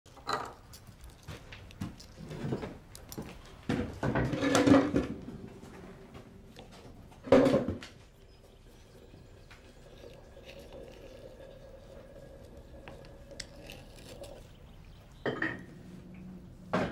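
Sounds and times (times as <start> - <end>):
chair legs scraping floor: 1.9 - 2.8, 3.7 - 8.0
crockery and cutlery clinking: 15.2 - 15.7.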